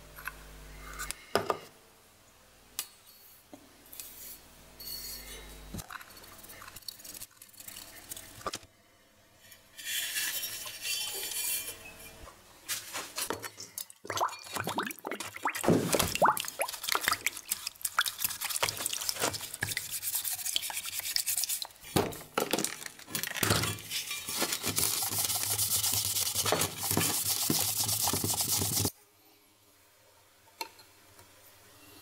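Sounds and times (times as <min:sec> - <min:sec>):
brush scratching on steel: 0:09.4 - 0:12.2, 0:16.7 - 0:22.0, 0:23.9 - 0:28.9.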